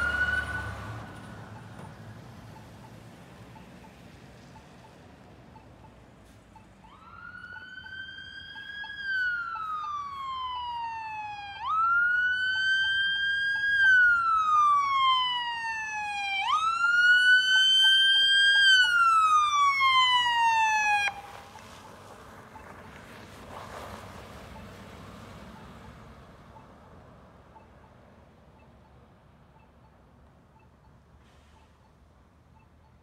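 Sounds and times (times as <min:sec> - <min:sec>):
wailing emergency siren: 0:00.0 - 0:01.7, 0:06.8 - 0:22.8.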